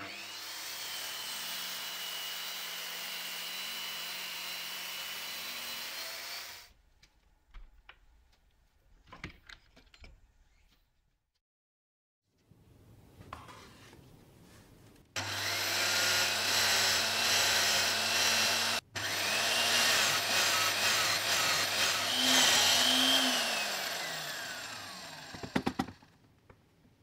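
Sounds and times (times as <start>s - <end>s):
electric drill boring into wood: 0.0s - 6.7s, 15.2s - 26.1s.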